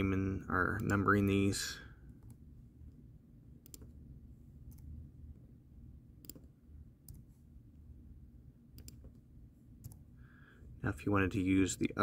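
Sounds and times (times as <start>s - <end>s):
low steady hum: 0.0s - 12.0s
mouse and keyboard clicks: 8.8s - 9.2s.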